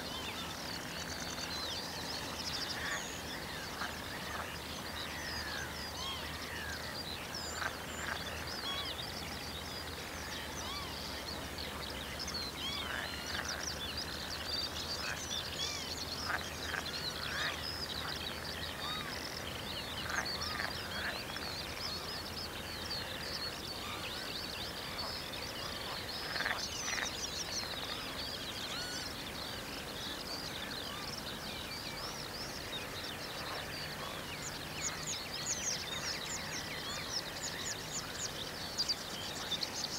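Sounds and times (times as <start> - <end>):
birds chirping: 0.0 - 39.9.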